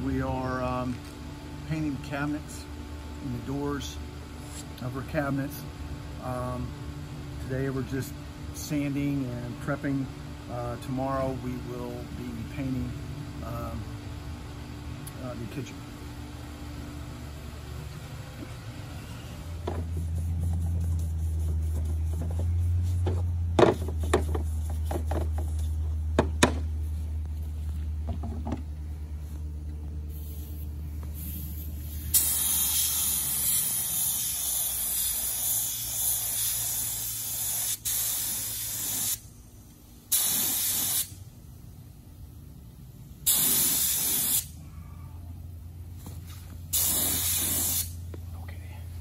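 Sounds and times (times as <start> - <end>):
low steady hum: 0.0 - 40.1, 41.0 - 43.3, 44.4 - 49.0
air spray gun hissing: 30.1 - 39.4, 40.1 - 41.2, 43.2 - 44.6, 46.7 - 48.1.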